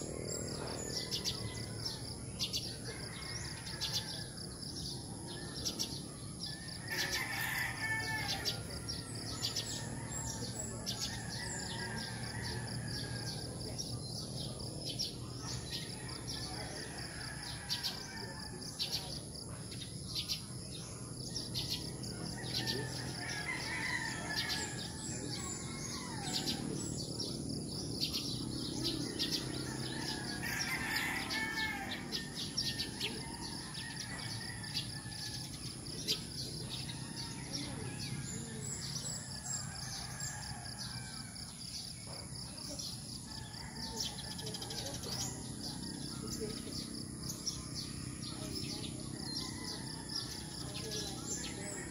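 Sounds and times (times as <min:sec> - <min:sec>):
distant rooster crowing: 0:00.4 - 0:13.6, 0:21.6 - 0:27.0, 0:28.7 - 0:41.7.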